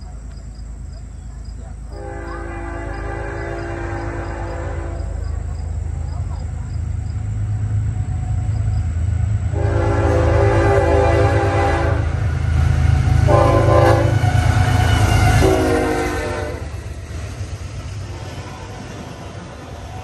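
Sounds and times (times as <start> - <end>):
diesel engines rumbling: 0.0 - 20.0
train air horn blasts: 1.9 - 5.4, 9.5 - 12.3, 13.0 - 16.8.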